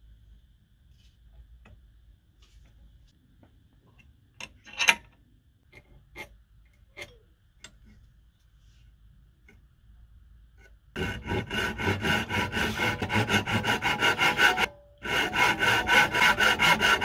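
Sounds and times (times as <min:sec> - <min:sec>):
metal vise parts clicking: 0:04.4 - 0:05.2.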